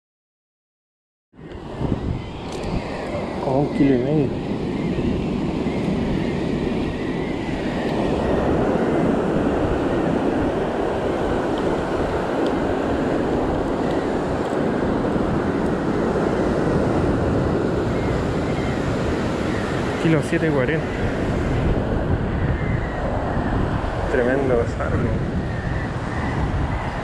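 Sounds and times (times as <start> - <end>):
wind buffeting microphone: 1.4 - 27.0
ocean surf breaking on rocks: 1.6 - 22.4.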